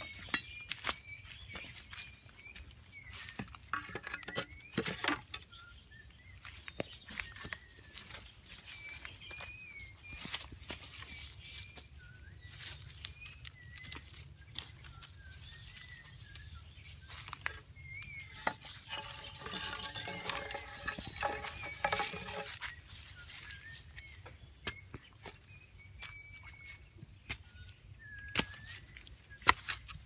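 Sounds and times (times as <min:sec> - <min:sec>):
birds whistling: 0:00.0 - 0:30.0
stick digging into earth: 0:18.3 - 0:22.8.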